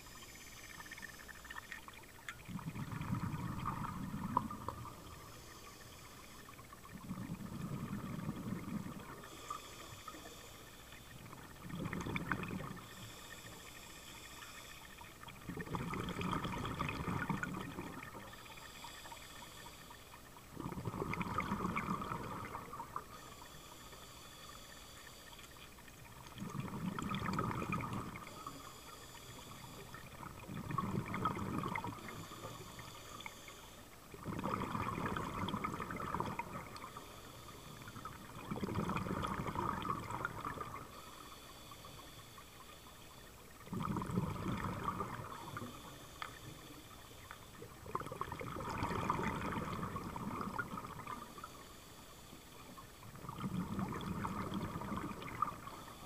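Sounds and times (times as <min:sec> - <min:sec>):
exhaled bubbles rumbling: 0:00.8 - 0:05.3, 0:06.2 - 0:09.5, 0:11.1 - 0:13.1, 0:15.0 - 0:18.5, 0:20.2 - 0:23.2, 0:25.7 - 0:28.6, 0:29.4 - 0:33.0, 0:34.0 - 0:41.2, 0:43.3 - 0:51.5, 0:52.8 - 0:56.0
regulator inhale hiss: 0:04.3 - 0:07.0, 0:08.6 - 0:11.4, 0:12.5 - 0:15.2, 0:18.1 - 0:20.4, 0:22.3 - 0:25.9, 0:28.2 - 0:30.1, 0:31.8 - 0:34.1, 0:36.3 - 0:38.3, 0:40.8 - 0:43.5, 0:45.2 - 0:47.8, 0:51.1 - 0:53.2, 0:55.5 - 0:56.0.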